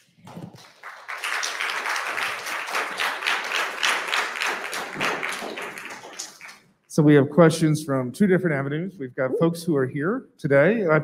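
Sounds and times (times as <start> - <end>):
audience applause: 0.0 - 6.6.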